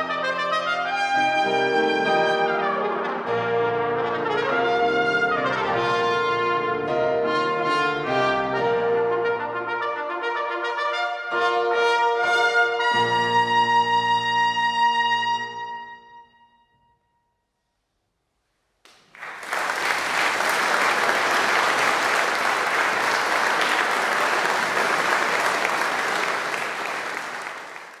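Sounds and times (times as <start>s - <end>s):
piano: 0.0s - 17.0s
audience applause: 18.9s - 28.0s.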